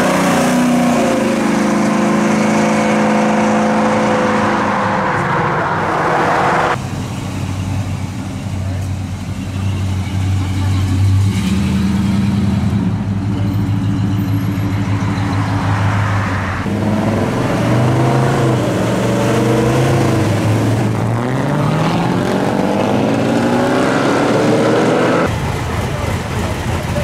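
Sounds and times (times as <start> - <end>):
car engine accelerating away: 16.7 - 25.4.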